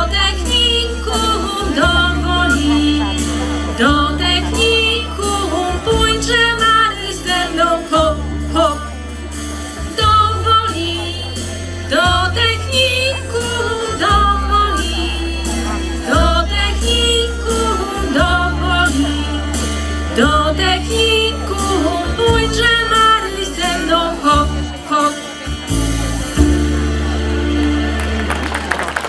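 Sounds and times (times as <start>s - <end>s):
woman singing into a microphone: 0.0s - 9.0s, 9.8s - 25.3s
pop-folk backing track with bass: 0.0s - 29.0s
people clapping: 27.0s - 29.0s.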